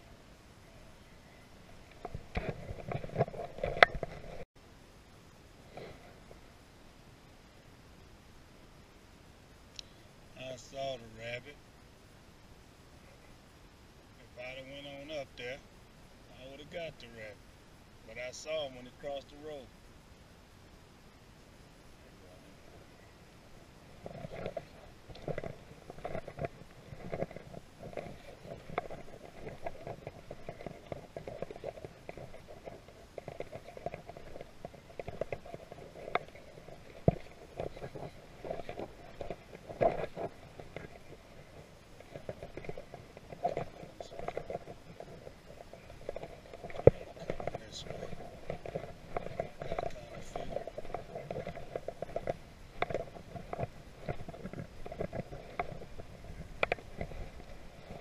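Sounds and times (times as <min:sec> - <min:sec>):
crunching footsteps: 0:23.9 - 0:58.0.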